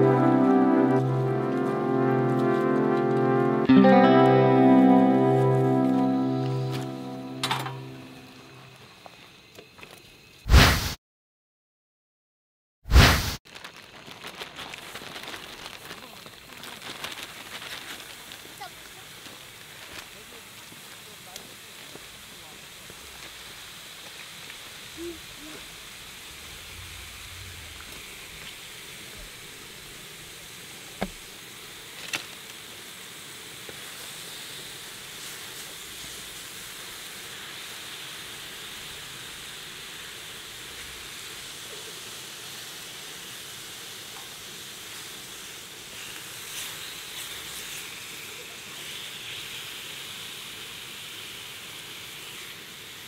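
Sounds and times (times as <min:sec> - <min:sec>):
pork sizzling on a griddle: 0:08.2 - 0:10.9, 0:12.9 - 0:53.0.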